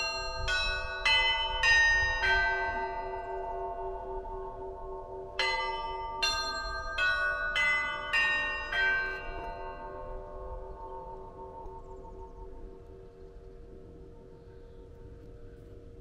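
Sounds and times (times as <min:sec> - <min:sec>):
small church bells struck: 0:00.0 - 0:12.3
large bell humming: 0:00.0 - 0:16.0.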